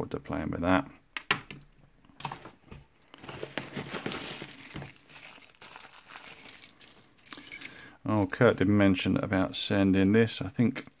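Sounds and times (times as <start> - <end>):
bubble wrap crinkling: 3.1 - 7.2.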